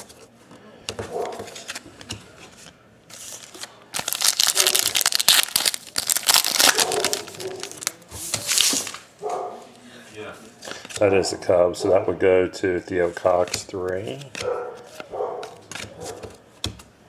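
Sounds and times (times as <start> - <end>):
foil wrapper crinkling and tearing: 3.3 - 9.0.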